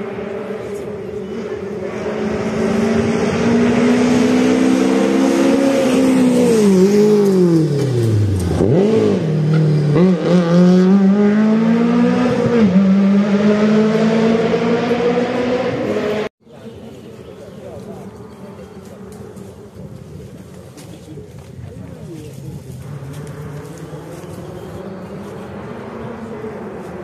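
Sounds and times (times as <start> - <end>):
rally car engine revving: 0.0 - 16.3, 22.8 - 27.0.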